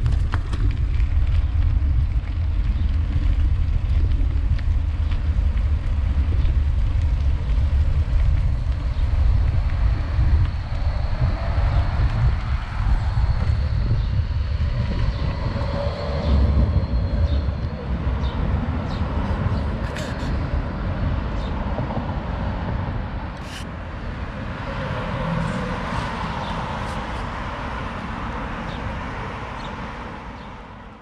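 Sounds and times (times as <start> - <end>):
tram rolling on tracks: 0.0 - 31.0
cars and van passing: 7.4 - 31.0.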